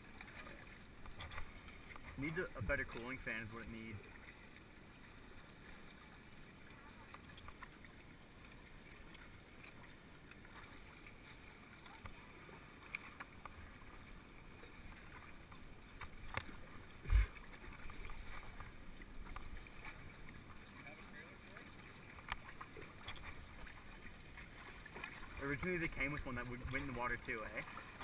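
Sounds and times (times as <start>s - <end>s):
lake water lapping: 0.0s - 28.0s
low thump: 17.1s - 17.3s.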